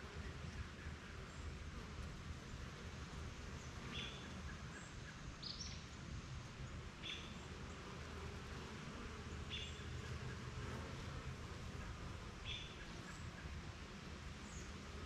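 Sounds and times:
bees buzzing: 7.4 - 15.0.

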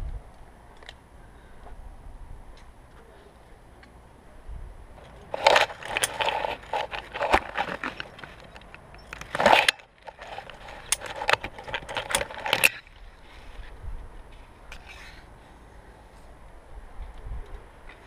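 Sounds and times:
carabiners clinking on steel cable: 5.0 - 12.9.

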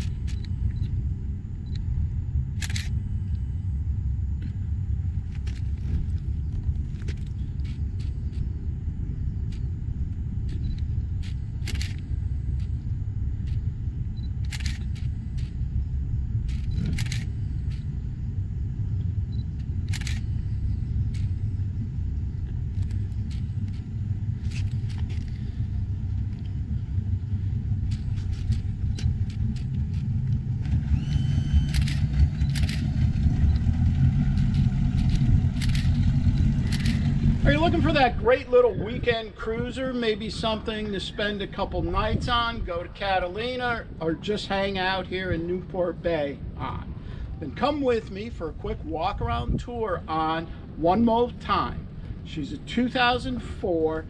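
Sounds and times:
sharp clicks: 0.0 - 0.9, 2.6 - 3.0, 10.4 - 12.0, 14.2 - 15.6, 16.5 - 17.9, 19.3 - 20.3, 27.8 - 33.7, 34.3 - 37.1
boat engines idling: 4.0 - 38.2.

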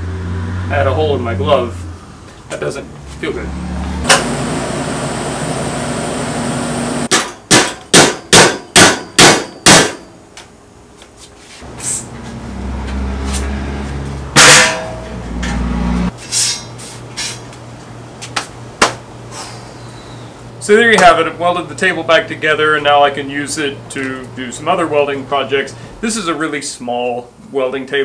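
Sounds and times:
welding arc buzzing: 4.0 - 7.1
hammer strikes on steel: 7.1 - 10.1, 14.3 - 15.6
metallic clang ringing: 14.4 - 15.6.

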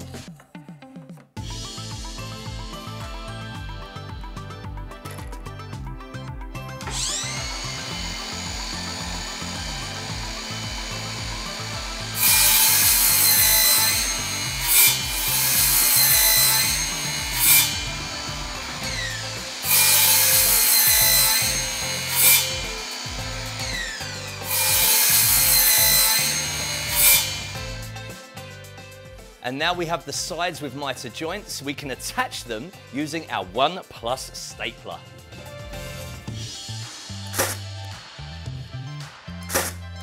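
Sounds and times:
saw cutting through wood: 1.4 - 3.9, 6.8 - 28.4, 35.4 - 38.1
mitre saw blade whine: 1.4 - 4.3, 6.8 - 28.3.

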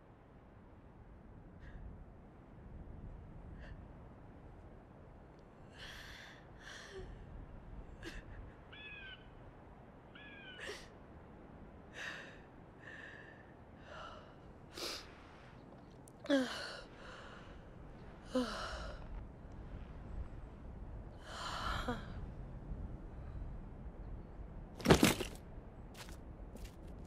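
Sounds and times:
woman sobbing: 8.0 - 8.7.

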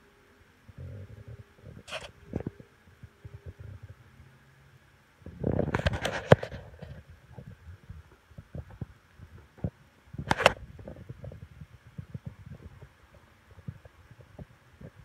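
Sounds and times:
scrape on microphone: 1.1 - 2.6, 5.3 - 8.9.

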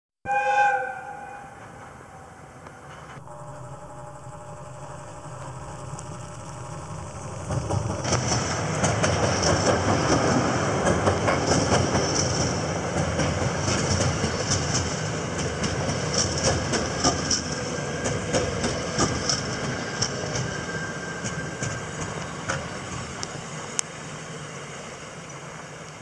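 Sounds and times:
train wheels rumbling on rail: 0.4 - 26.0
wheels clacking over rail joints: 4.9 - 23.9.

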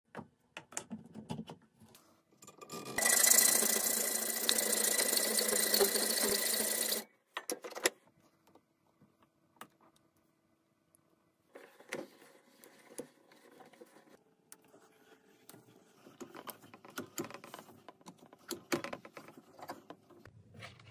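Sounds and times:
grinder whining on steel: 2.8 - 7.0.

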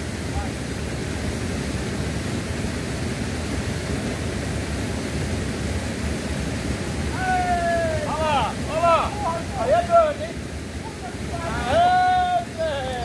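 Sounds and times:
river current rushing: 0.0 - 13.0
high drawn-out cry: 7.1 - 9.5.

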